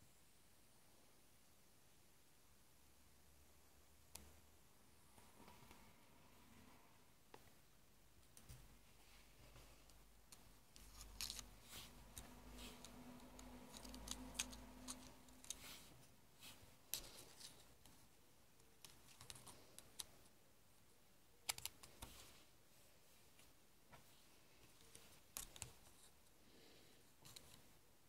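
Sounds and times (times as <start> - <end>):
plastic straws clicking: 12.1 - 15.6.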